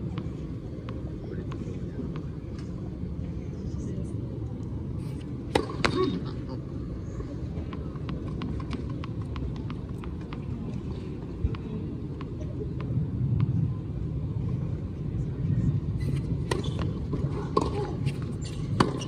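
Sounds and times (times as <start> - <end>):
low crowd murmur: 0.0 - 19.0
tennis ball bouncing on court: 5.5 - 6.0, 7.7 - 10.5.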